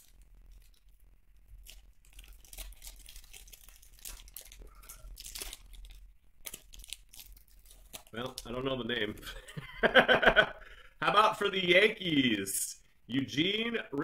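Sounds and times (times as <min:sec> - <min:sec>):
foil wrapper tearing and crinkling: 0:00.0 - 0:09.0.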